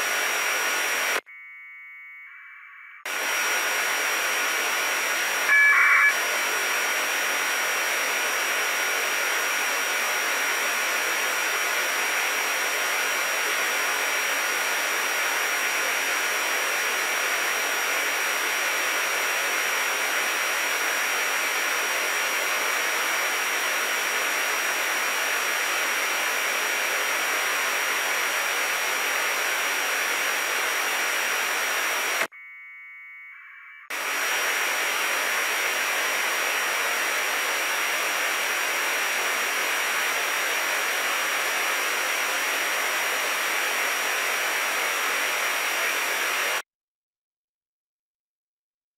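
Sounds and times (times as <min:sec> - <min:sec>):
faint data tones: 0:01.2 - 0:03.1, 0:05.4 - 0:06.2, 0:32.2 - 0:33.9
radio receiver hiss: 0:03.0 - 0:32.3, 0:33.9 - 0:46.6.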